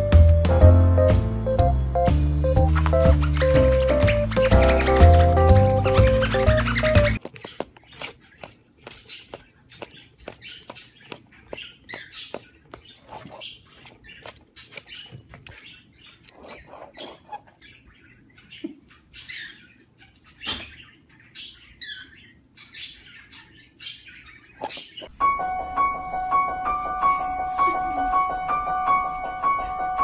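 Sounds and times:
parrot chirping and squeaking: 2.6 - 25.1.

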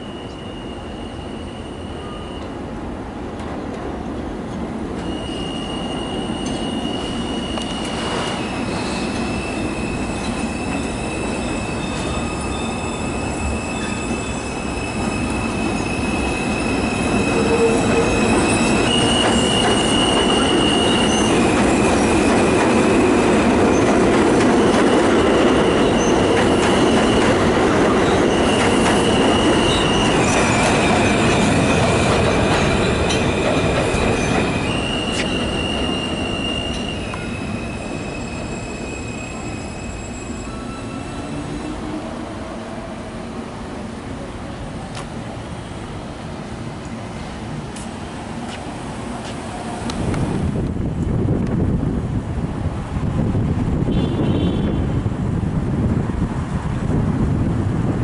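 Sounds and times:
train wheels squealing: 0.0 - 2.7, 5.0 - 23.9, 24.6 - 42.2
rumble of train cars: 0.0 - 58.0.

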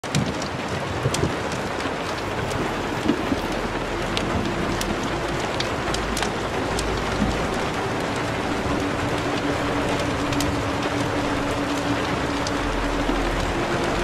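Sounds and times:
rain-like hiss: 0.0 - 14.0
low rumble: 1.0 - 14.0.

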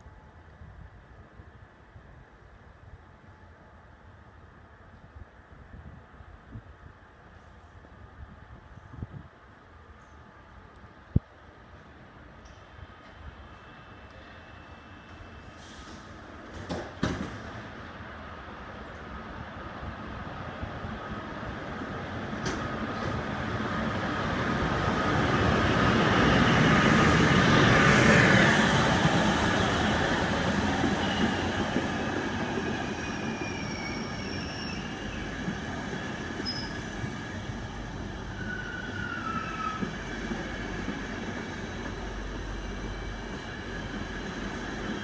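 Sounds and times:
passenger train passing: 0.0 - 45.0
high wheel squeals: 33.0 - 35.4, 36.3 - 37.0, 38.2 - 40.2.

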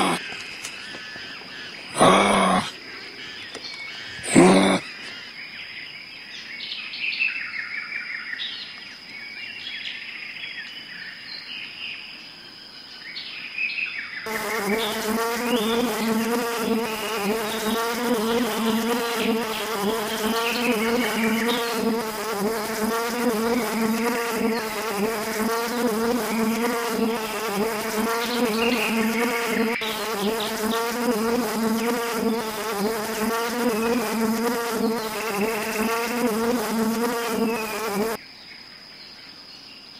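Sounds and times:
wasps buzzing: 0.0 - 0.2, 14.3 - 38.2
faint chirps: 14.3 - 39.9.

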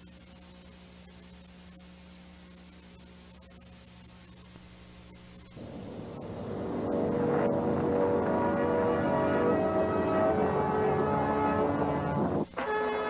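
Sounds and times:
mains hum: 0.0 - 13.0
tape hiss: 0.0 - 13.0
dense low drone: 5.5 - 12.5.

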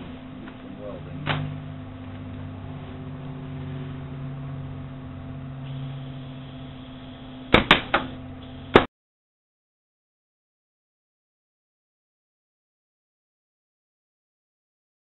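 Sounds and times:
low hum: 0.0 - 8.9.

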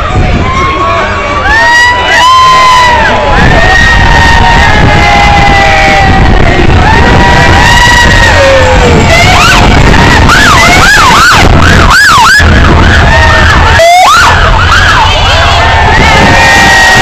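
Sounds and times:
crowd cheering: 0.0 - 17.0
police motorcycle siren: 6.8 - 17.0.

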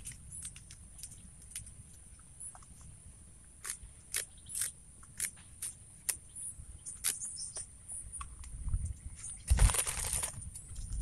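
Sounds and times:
leaves snapping and rustling: 9.4 - 11.0.

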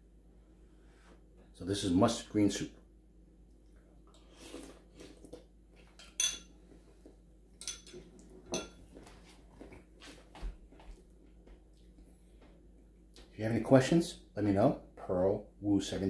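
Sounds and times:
sips from a spoon: 4.1 - 5.5
spoon clinking on ceramic bowl: 6.0 - 6.5, 7.6 - 8.8.

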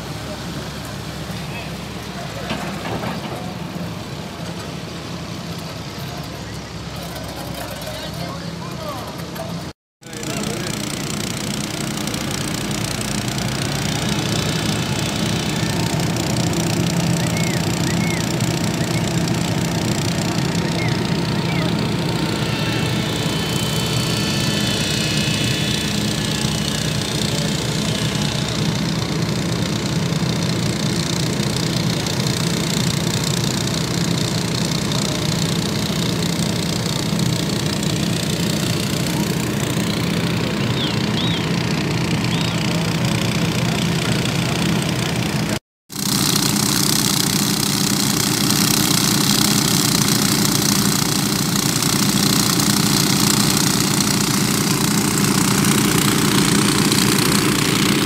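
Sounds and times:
water pump engines running: 0.0 - 58.0.

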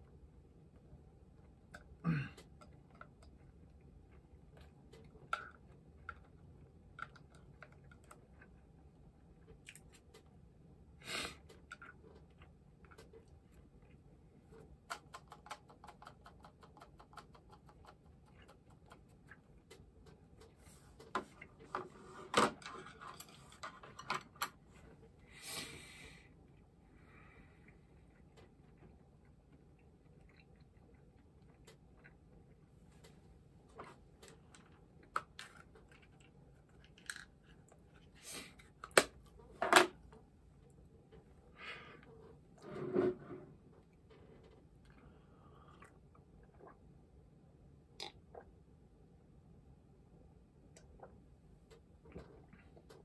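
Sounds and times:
tableware clicks and knocks: 39.6 - 40.0.

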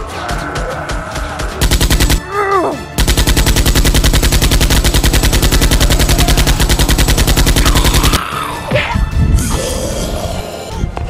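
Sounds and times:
machine-gun burst: 1.6 - 2.2, 3.0 - 8.2.

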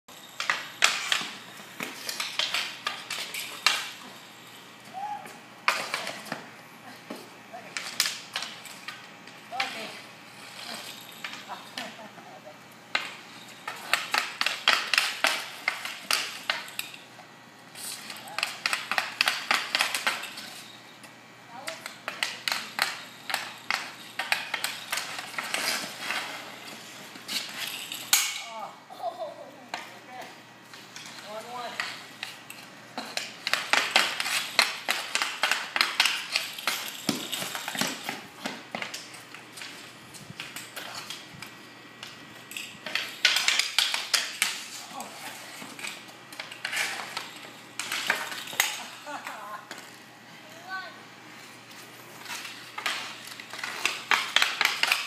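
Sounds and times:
hockey sticks clacking: 0.4 - 4.2, 4.9 - 6.5, 7.1 - 12.2, 12.9 - 17.1, 17.7 - 20.7, 21.6 - 28.6, 29.7 - 50.0, 51.4 - 55.0
sticks scraping on concrete: 21.5 - 28.3, 42.4 - 49.8.

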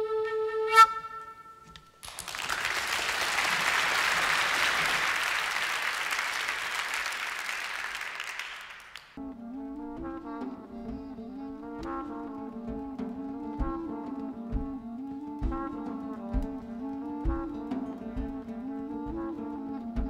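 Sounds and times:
wooden flute note: 0.0 - 1.9, 9.2 - 20.0
audience applauding: 1.8 - 9.2
brass instruments low notes: 9.2 - 20.0.

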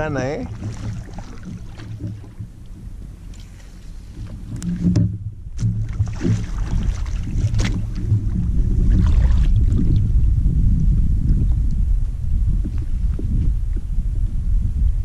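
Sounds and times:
paddle and rod knocks: 0.0 - 3.5, 4.1 - 8.5
wind rumbling on microphone: 0.0 - 15.0.

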